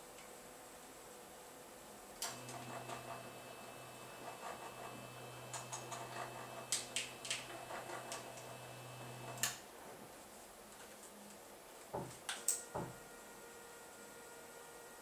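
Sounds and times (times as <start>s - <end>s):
stepper motors humming and ticking: 2.2s - 9.6s.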